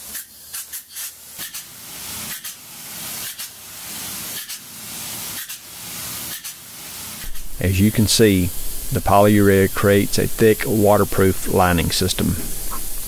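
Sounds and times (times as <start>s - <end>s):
spray gun hissing: 0.0s - 13.0s.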